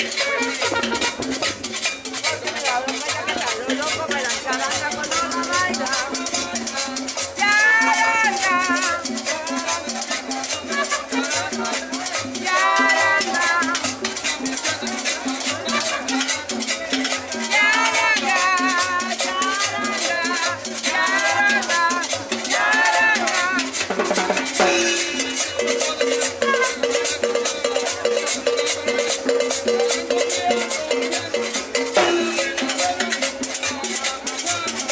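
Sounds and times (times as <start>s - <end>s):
drum beat: 0.0s - 34.9s
shaker rattle: 0.0s - 34.9s
street band playing dance music: 0.0s - 34.9s
person singing: 4.8s - 14.4s, 17.4s - 27.9s, 29.7s - 34.9s.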